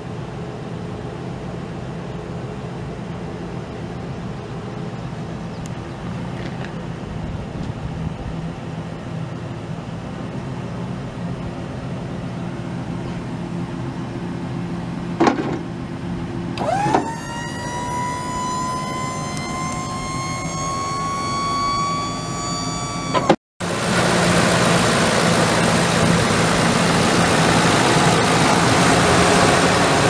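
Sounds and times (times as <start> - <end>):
truck engine idling: 1.4 - 30.0
small electric motor whine: 16.6 - 23.4.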